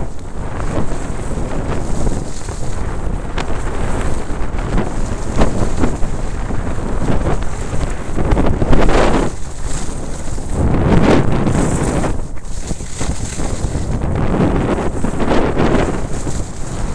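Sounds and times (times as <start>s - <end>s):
skis scraping snow: 0.0s - 16.9s
wind buffeting microphone: 0.0s - 16.9s.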